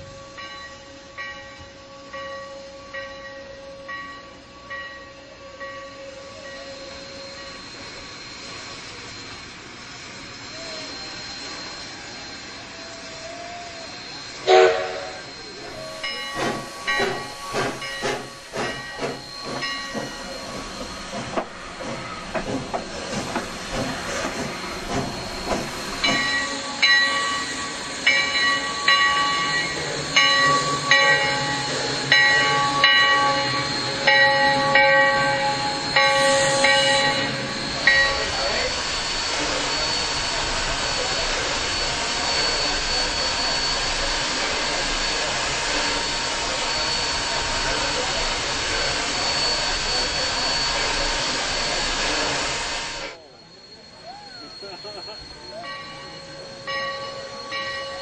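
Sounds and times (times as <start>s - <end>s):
steam hissing: 0.0s - 58.0s
steam locomotive exhaust chuffs: 0.0s - 58.0s
steam whistle blast: 10.4s - 20.9s, 24.2s - 53.2s.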